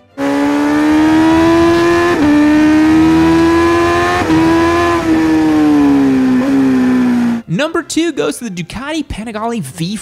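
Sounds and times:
motorcycle engine accelerating: 0.0 - 7.4
motorcycle gear shifts: 0.2 - 7.4.

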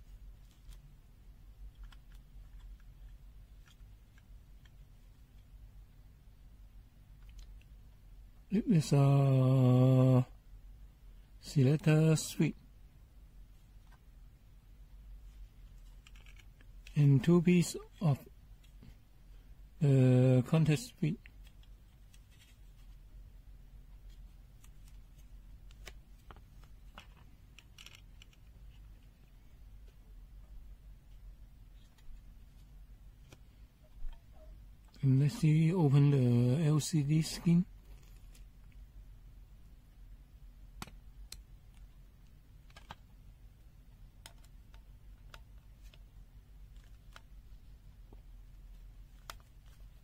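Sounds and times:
low steady hum: 0.0 - 50.0
plastic parts clicking and scraping: 15.6 - 17.0, 24.1 - 29.3, 42.6 - 43.1, 44.2 - 46.1, 46.7 - 47.3.

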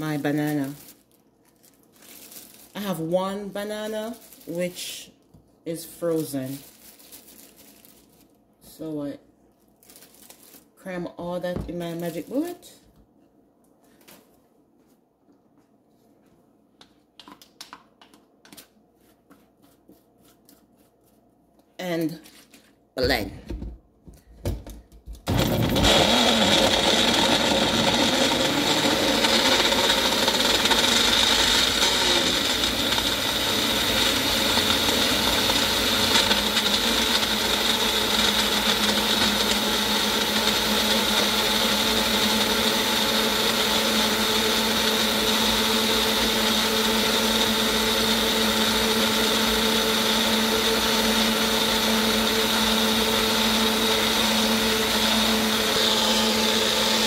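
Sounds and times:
blender motor whining: 25.3 - 57.0.

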